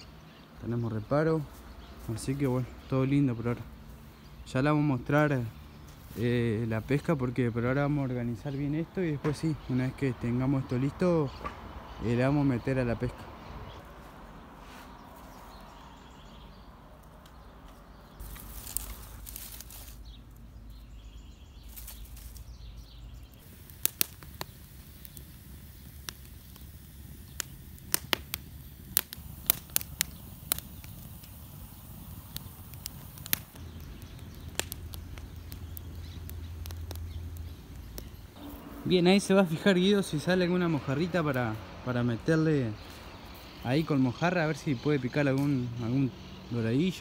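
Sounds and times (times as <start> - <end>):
wood fire crackling: 0.0 - 47.0
sharp fire pops: 23.3 - 38.6.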